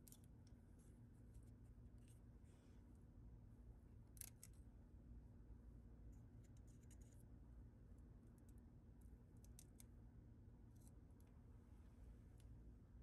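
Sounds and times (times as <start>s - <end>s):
low steady hum: 0.0s - 13.0s
plastic knife clicks and scratches: 4.2s - 4.6s.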